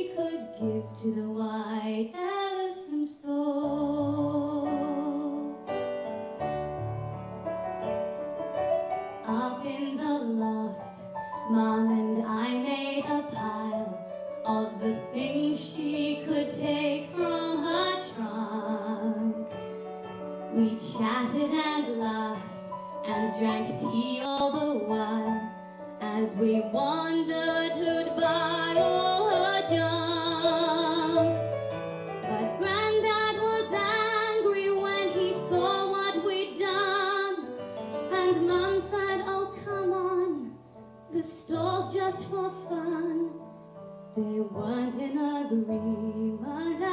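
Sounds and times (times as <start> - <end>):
woman singing into a microphone: 0.0 - 5.7, 9.2 - 19.5, 20.5 - 31.4, 32.3 - 37.5, 38.1 - 43.5, 44.1 - 46.9
instrumental accompaniment: 4.2 - 41.5.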